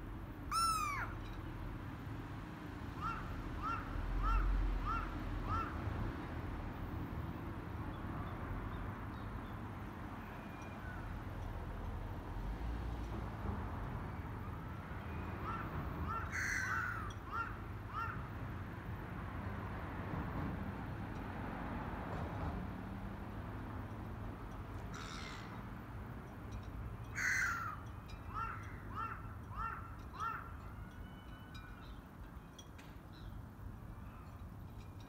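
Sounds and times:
crow cawing: 0.5 - 1.2, 3.0 - 5.8, 15.4 - 18.3, 24.9 - 25.6, 27.2 - 30.5.

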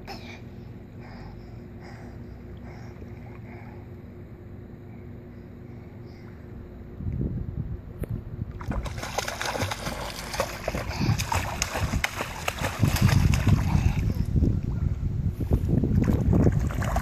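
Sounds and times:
child splashing in pool: 8.6 - 14.3, 16.0 - 17.0.

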